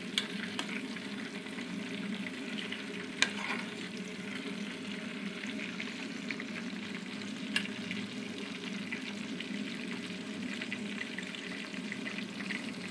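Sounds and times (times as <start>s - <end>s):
chips sizzling in oil: 0.0s - 12.9s
metal spoon stirring: 3.2s - 3.7s.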